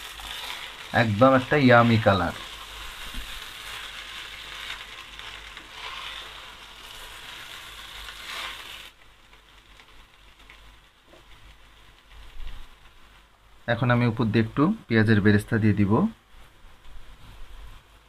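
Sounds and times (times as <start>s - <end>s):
rice sizzling lightly: 0.0s - 14.7s
spatula scraping rice in pot: 1.7s - 9.0s.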